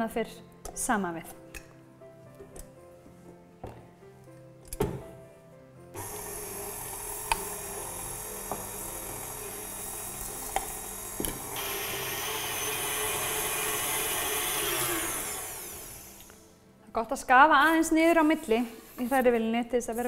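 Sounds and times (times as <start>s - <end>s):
stand mixer running: 6.0s - 16.4s.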